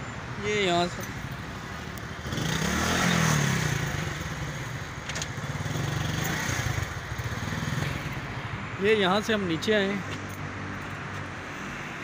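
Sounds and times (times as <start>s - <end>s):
road traffic hum: 0.0s - 12.0s
vehicle engine passing by: 2.2s - 4.6s.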